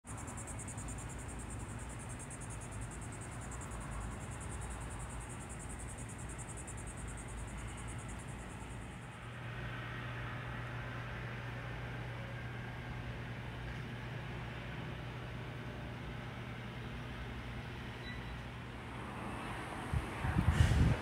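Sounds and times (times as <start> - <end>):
cricket trilling: 0.0 - 9.6
low hum of fans: 0.1 - 21.0.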